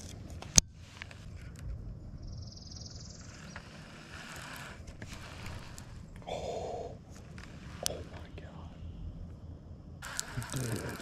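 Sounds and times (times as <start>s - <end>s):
high buzzy hiss: 10.0s - 11.0s.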